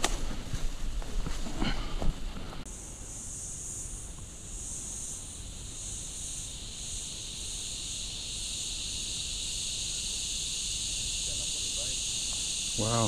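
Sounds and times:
insects droning: 0.0 - 13.0
lower insect drone: 2.6 - 13.0.

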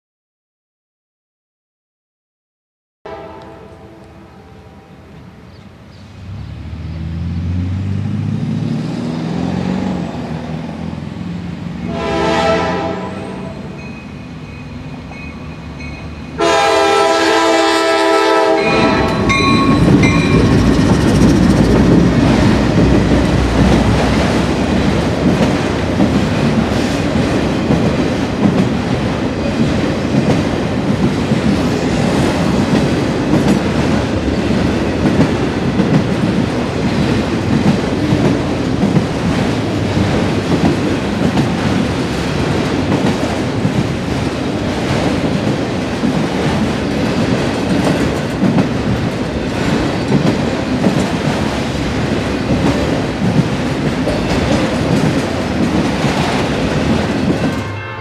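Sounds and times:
diesel train horn: 3.1 - 5.1, 11.9 - 13.8, 16.4 - 20.6, 57.4 - 58.0
rail cars rumbling and clattering: 3.1 - 58.0
locomotive engine approaching: 4.1 - 16.5, 18.4 - 57.6.

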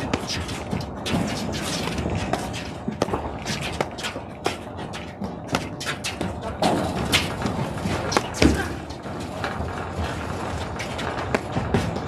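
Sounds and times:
paddles striking ball: 0.0 - 9.0.

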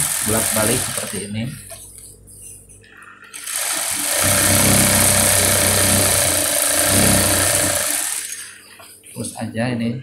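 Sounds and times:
industrial sewing machine stitching: 0.0 - 1.3, 3.3 - 8.6
low motor hum: 4.1 - 8.2.

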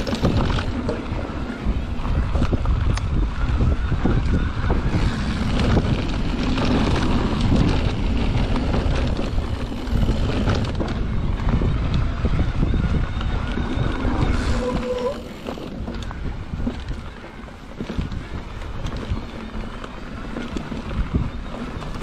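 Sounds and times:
bike rattling over dirt trail: 0.0 - 22.0
wind buffeting microphone: 0.0 - 22.0
short squeal: 13.3 - 15.4.

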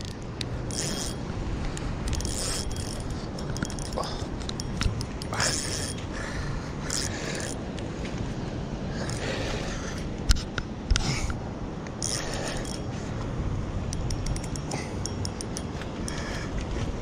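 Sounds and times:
fishing reel clicks: 0.0 - 1.2, 1.8 - 6.0, 6.9 - 7.6, 12.0 - 12.9, 13.9 - 16.4
sharp knocks on fishing reel: 0.0 - 1.2, 2.1 - 6.0, 6.9 - 7.6, 13.9 - 16.3
steady low rumble: 0.0 - 17.0.

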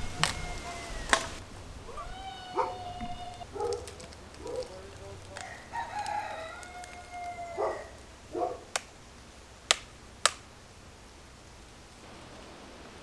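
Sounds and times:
dog whining: 0.0 - 4.6
dog yelping: 0.0 - 4.7, 7.2 - 8.7.

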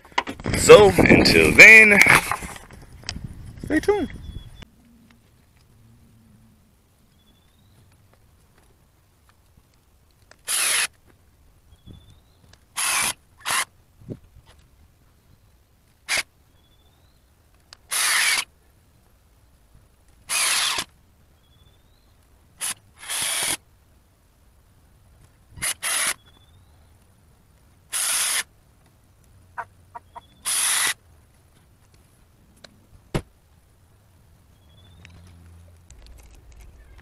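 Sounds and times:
cordless drill bursts: 10.5 - 10.9, 12.8 - 13.6, 17.9 - 18.4, 20.3 - 20.9, 22.6 - 23.6, 25.6 - 26.2, 27.9 - 28.4, 30.4 - 31.0.

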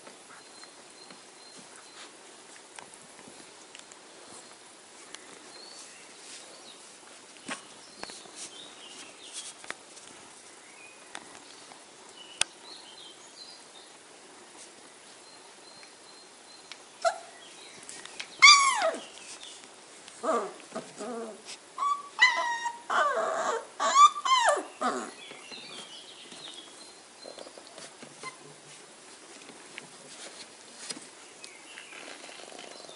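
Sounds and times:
faint rustling: 0.0 - 12.2, 17.4 - 22.3, 24.5 - 32.9
puppies whimpering and squealing: 18.4 - 19.1, 20.2 - 25.3.

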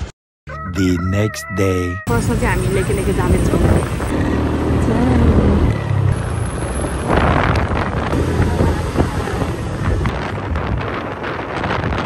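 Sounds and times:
wind buffeting microphone: 2.2 - 4.2, 4.8 - 12.0
engine and tyre rumble: 2.2 - 12.0.

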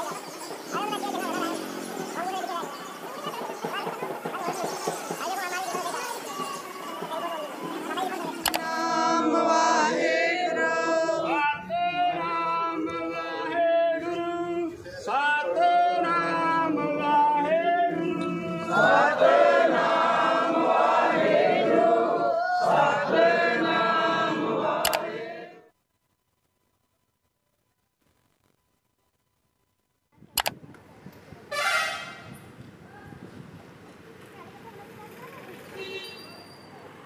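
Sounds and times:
group singing a hymn: 6.5 - 25.7.

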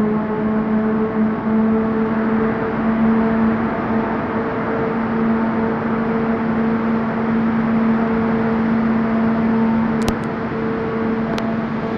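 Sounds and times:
turbine running: 0.0 - 11.9
sharp clicks: 10.0 - 10.3.

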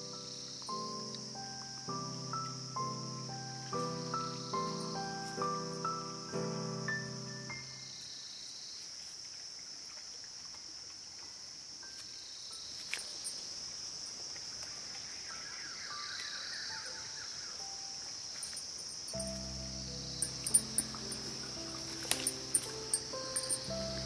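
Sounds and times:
high-pitched insect chorus: 0.0 - 24.0
small clicks: 21.9 - 23.7.

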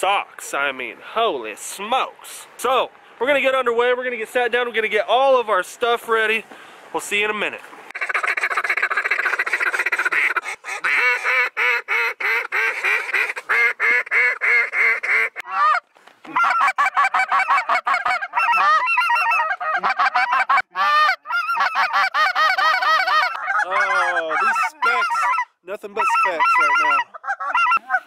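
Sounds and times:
goose calls honking: 7.9 - 28.0.

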